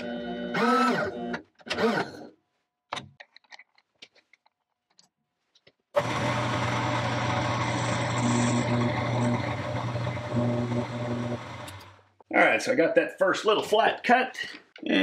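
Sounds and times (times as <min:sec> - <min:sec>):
mill-drill machine hum: 0:06.0 - 0:12.0.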